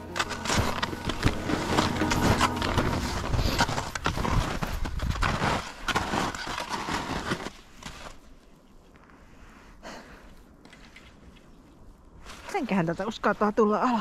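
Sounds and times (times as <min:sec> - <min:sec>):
skis crunching through snow: 0:00.0 - 0:08.5.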